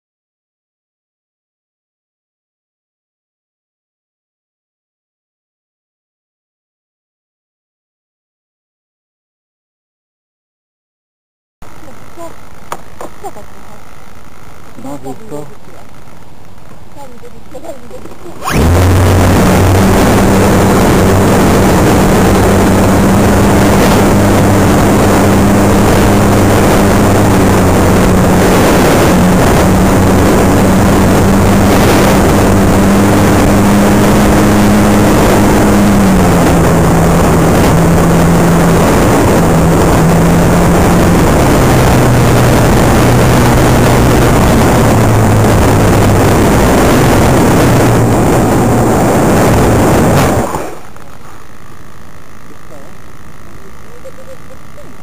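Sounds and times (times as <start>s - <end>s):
electric motor and propeller humming: 11.7s - 55.0s
wind rushing over microphone: 17.0s - 51.3s.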